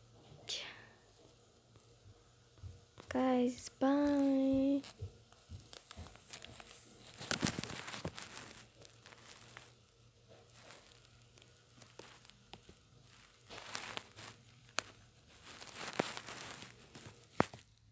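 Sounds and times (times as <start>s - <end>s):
rustling of handling phone: 3.9s - 17.9s
scraping on phone: 4.8s - 17.7s.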